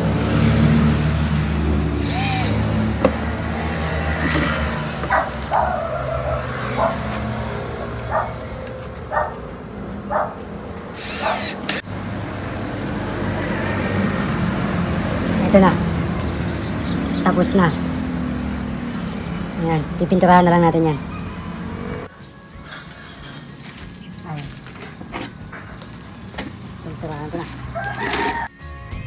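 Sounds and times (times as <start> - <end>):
engine hum: 0.0 - 28.5
dog barking: 5.1 - 8.5, 9.1 - 9.4, 10.1 - 10.4.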